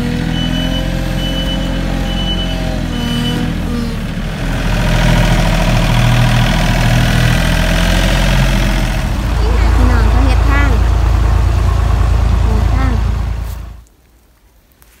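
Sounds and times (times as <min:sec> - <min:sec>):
diesel engine running: 0:00.0 - 0:13.8
reversing alarm beeping: 0:00.3 - 0:03.9.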